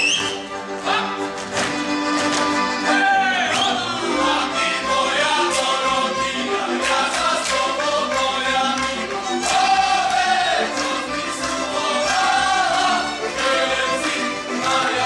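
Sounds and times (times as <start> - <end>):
group singing held notes: 3.5 - 15.0.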